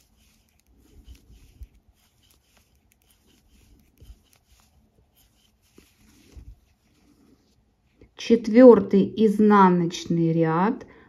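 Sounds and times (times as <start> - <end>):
knitting needles clicking: 0.0 - 6.4
wool yarn scratching: 0.0 - 8.1.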